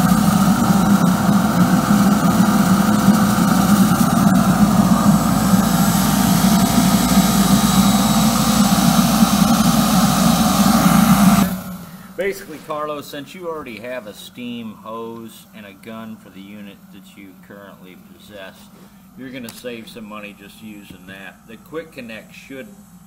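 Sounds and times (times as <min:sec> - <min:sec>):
steam jetting hiss: 0:00.0 - 0:13.4
burner and pump running: 0:00.0 - 0:23.0.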